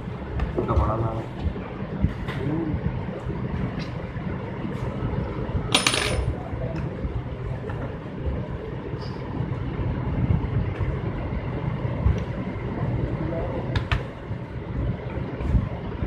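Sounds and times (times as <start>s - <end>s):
low background rumble: 0.0s - 16.0s
small metal object clinking: 5.8s - 6.3s.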